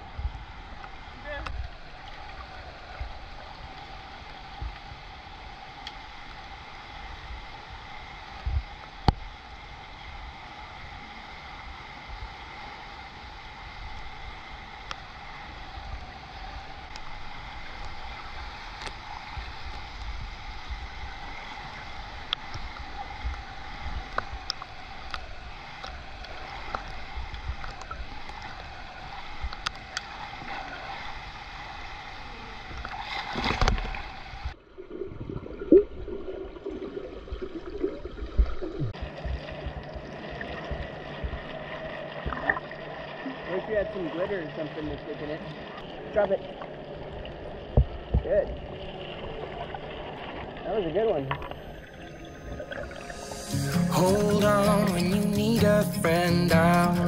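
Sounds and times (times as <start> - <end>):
pool water rushing hiss: 0.4 - 34.6, 52.2 - 57.0.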